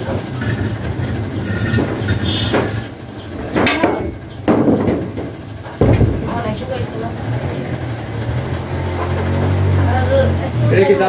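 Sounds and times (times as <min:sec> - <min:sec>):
sharp knocks of handled objects: 0:01.7 - 0:06.6.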